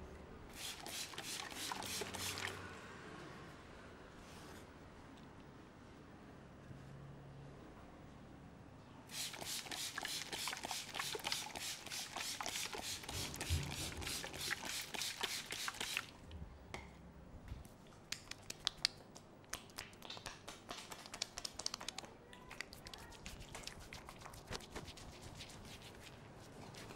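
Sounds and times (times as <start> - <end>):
spray bottle hissing sprays: 0.6 - 2.5, 9.1 - 16.1
sharp clicks and taps: 18.0 - 23.7.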